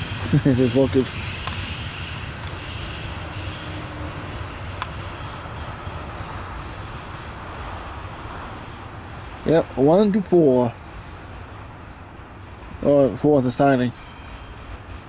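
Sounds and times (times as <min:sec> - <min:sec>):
train wheels rumbling on rails: 0:00.0 - 0:15.0
sharp clicks: 0:01.0 - 0:01.7.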